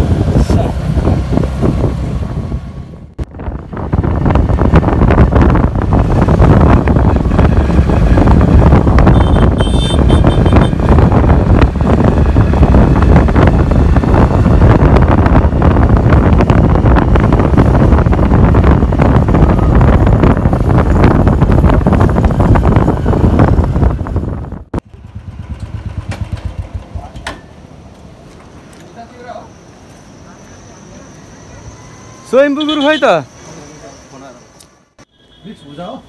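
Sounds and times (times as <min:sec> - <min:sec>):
wind buffeting microphone: 0:00.0 - 0:26.7
motorcycle engines rumbling: 0:00.0 - 0:34.6.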